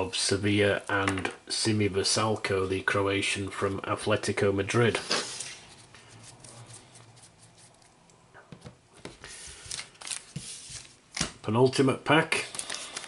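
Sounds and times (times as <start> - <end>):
paper stickers rustling: 9.2 - 11.0, 12.4 - 13.0.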